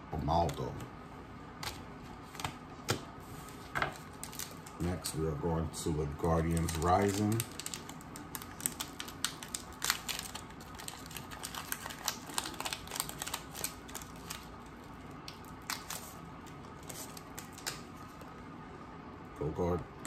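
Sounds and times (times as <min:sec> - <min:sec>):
foil wrapper tearing and crinkling: 0:03.9 - 0:05.1, 0:06.1 - 0:17.9.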